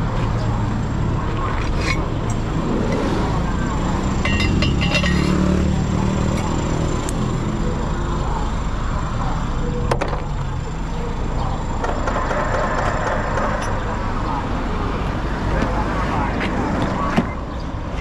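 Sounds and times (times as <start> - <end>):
light metallic clinks: 4.2 - 5.4
sharp metal clank: 4.2 - 5.5.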